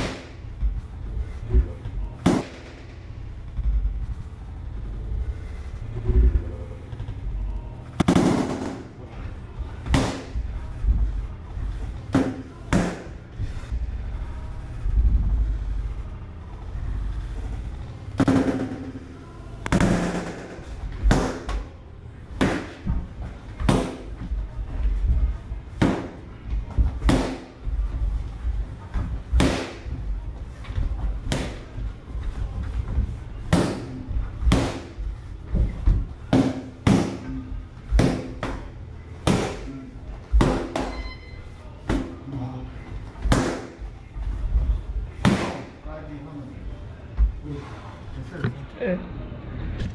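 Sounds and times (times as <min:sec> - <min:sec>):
boxing gloves smacking pads: 0:00.0 - 0:00.4, 0:02.2 - 0:02.9, 0:08.0 - 0:08.9, 0:09.8 - 0:10.4, 0:19.7 - 0:21.7, 0:22.4 - 0:24.3, 0:25.8 - 0:27.7, 0:29.2 - 0:30.0, 0:31.2 - 0:31.8, 0:33.5 - 0:39.7, 0:40.3 - 0:40.9, 0:43.2 - 0:43.8, 0:45.2 - 0:45.7.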